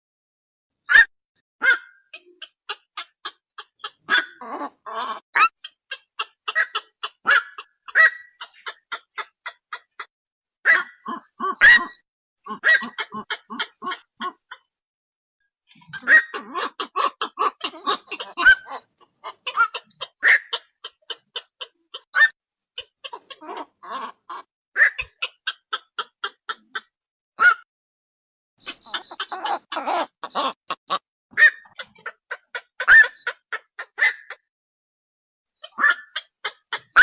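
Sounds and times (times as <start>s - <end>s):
heron harsh calls: 28.7s - 34.4s.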